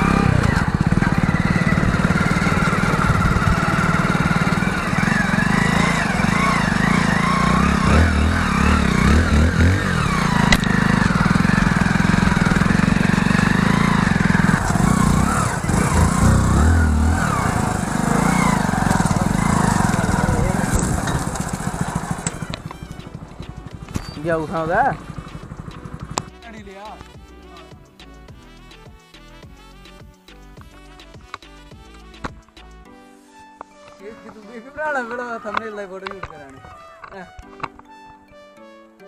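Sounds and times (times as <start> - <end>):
tyres rumbling on dirt track: 0.0 - 27.1
motorcycle engine running: 0.0 - 28.4.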